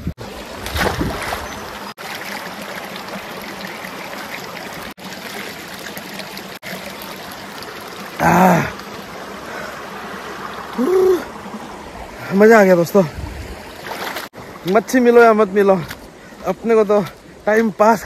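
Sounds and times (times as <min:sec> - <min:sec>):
water pouring from spout: 0:02.0 - 0:09.0
man exclaiming: 0:08.2 - 0:08.8, 0:10.8 - 0:11.3.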